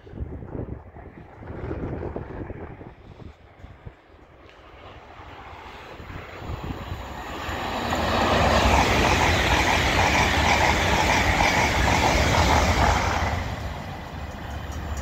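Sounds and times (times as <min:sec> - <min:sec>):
train passing: 0:00.0 - 0:15.0
wheels clicking on rails: 0:06.2 - 0:15.0.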